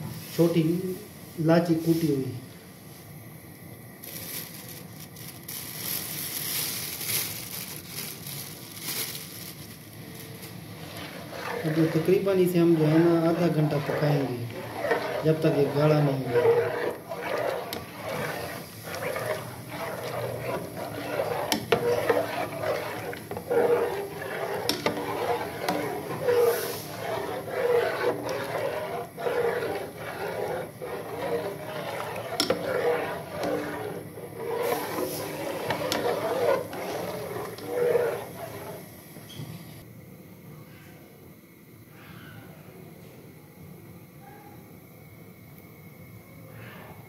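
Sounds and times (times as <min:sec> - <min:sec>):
spice crinkling and crackling: 0:04.0 - 0:11.4
spoon stirring in a metal pot: 0:10.4 - 0:39.0.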